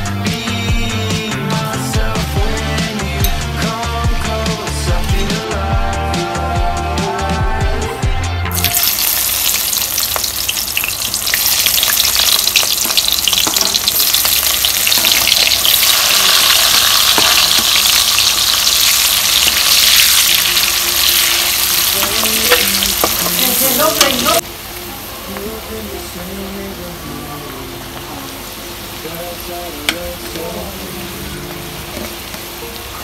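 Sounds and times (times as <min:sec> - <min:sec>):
onion frying in hot oil: 0:08.5 - 0:24.9.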